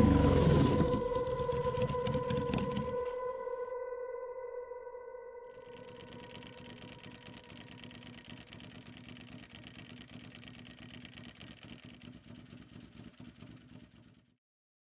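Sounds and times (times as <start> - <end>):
motorcycle engine idling: 5.5 - 14.3.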